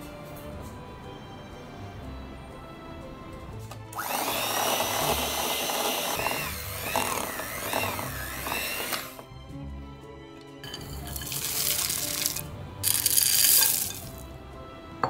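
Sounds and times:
soft background music: 0.0 - 15.0
electric hand mixer whine: 4.0 - 9.2.

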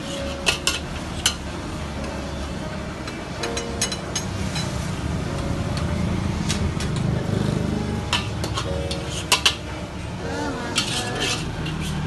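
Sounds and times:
metal spatula scraping a wok: 8.2 - 9.6, 10.2 - 12.0.

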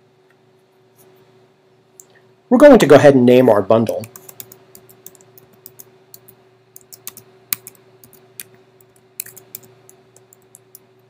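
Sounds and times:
faint steady hum: 0.0 - 11.0
computer keyboard typing: 3.9 - 10.9.

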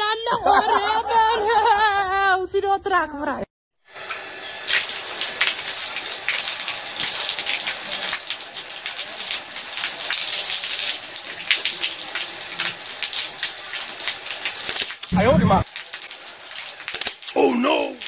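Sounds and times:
hose water spattering on concrete: 3.9 - 18.0.

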